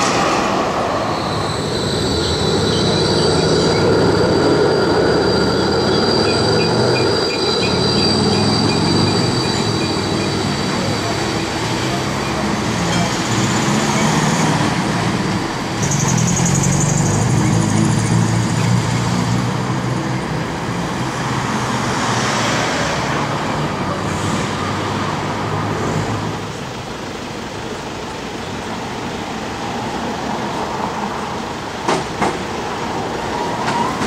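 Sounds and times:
tram motor hum: 0.0s - 24.2s
wheels squealing on rails: 0.0s - 26.4s, 30.0s - 34.0s
street traffic: 0.0s - 34.0s.

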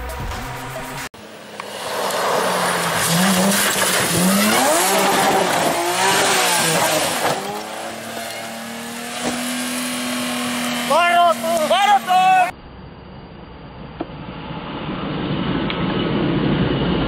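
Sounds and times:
rally car engine revving: 0.6s - 12.5s
gravel spraying: 1.5s - 12.5s
car crashing: 1.6s - 12.4s.

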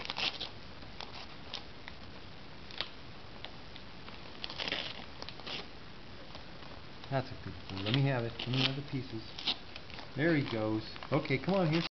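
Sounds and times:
dog tearing wrapping paper: 0.0s - 1.7s, 4.2s - 5.7s, 7.6s - 11.9s.

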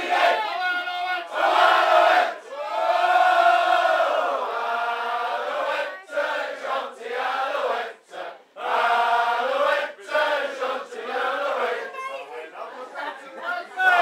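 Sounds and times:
men singing in chorus: 6.6s - 11.8s.

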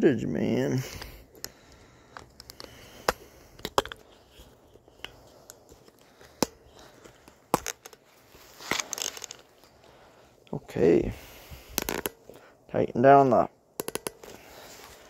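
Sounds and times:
phone mount clicks and knocks: 2.2s - 4.0s, 13.8s - 14.4s.

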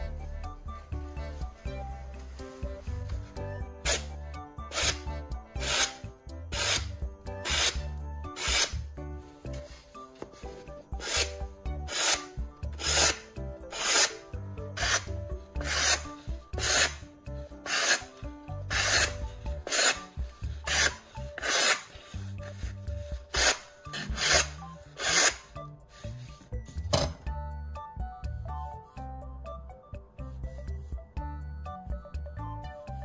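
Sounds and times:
background music: 0.0s - 33.0s
knife slicing paper: 4.7s - 5.0s, 5.6s - 8.8s, 11.0s - 14.2s, 14.8s - 17.0s, 17.7s - 22.6s, 23.3s - 25.5s.

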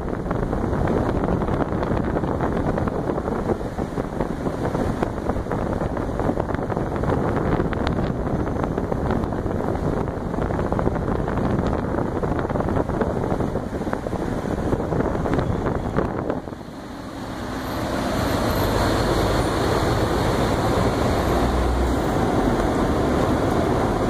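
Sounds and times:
fan air rushing over microphone: 0.0s - 24.0s.

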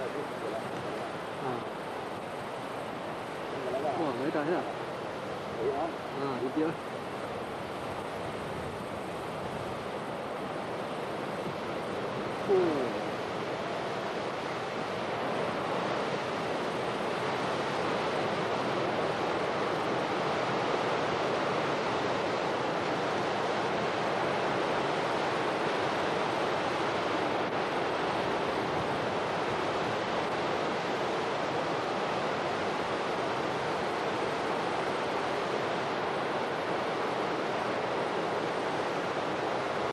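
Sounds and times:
floodwater rushing: 0.0s - 39.9s
wind buffeting microphone: 0.0s - 39.9s.

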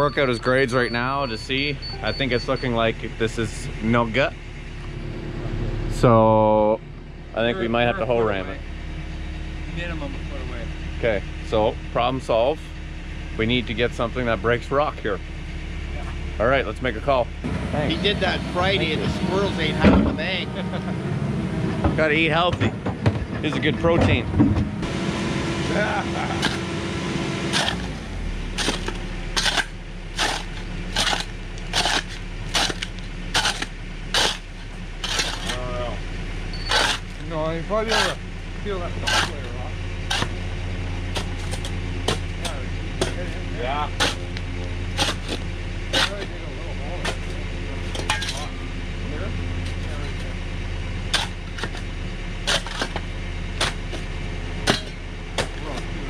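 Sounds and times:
low machine hum: 0.0s - 56.0s
steel pick striking rock: 28.6s - 35.6s, 44.0s - 44.4s, 52.5s - 55.9s.

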